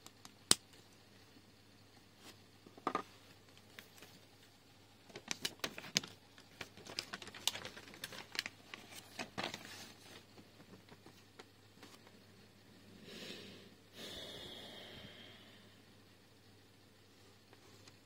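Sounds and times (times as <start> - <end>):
paper rustling: 5.1 - 12.0.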